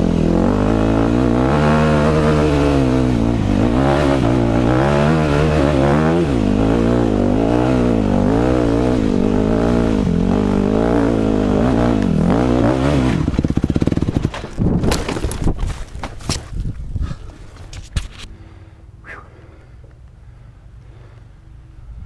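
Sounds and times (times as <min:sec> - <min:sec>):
dirt bike engine revving: 0:00.0 - 0:15.5.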